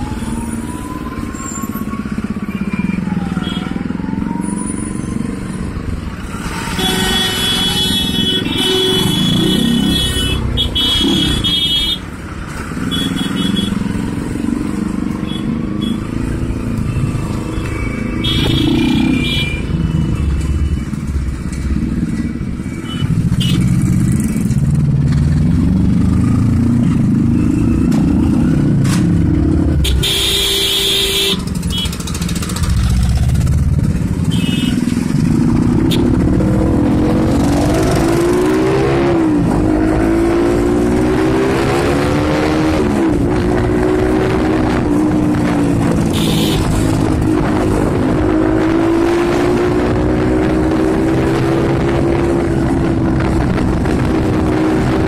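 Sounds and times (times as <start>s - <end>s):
vehicle engines running: 0.0s - 55.0s.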